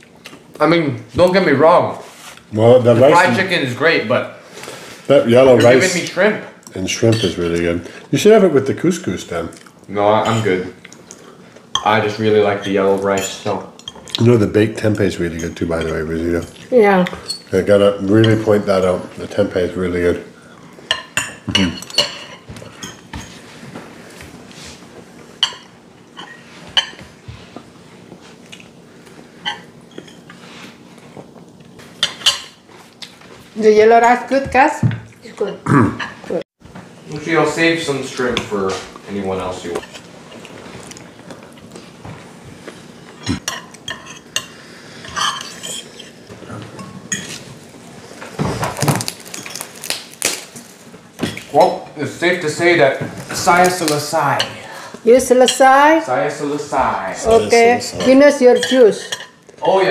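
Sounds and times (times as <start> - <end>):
cutlery clinking on plates: 7.1 - 7.4, 20.9 - 23.4, 31.9 - 32.6, 43.2 - 47.5, 57.9 - 59.8.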